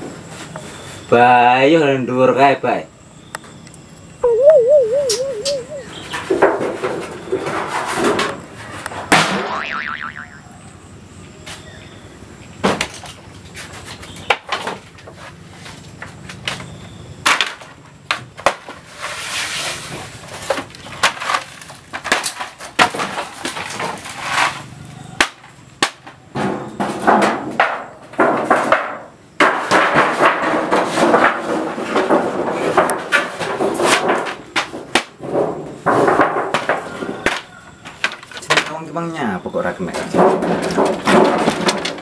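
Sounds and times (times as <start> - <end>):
knocks and clatter: 26.4 - 37.4, 39.9 - 42.0.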